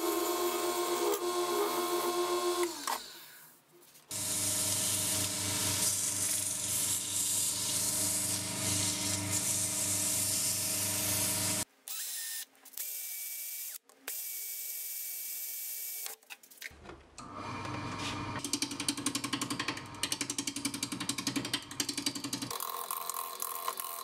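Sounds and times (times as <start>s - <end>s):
wood lathe hum: 0.0s - 2.9s, 4.1s - 11.6s.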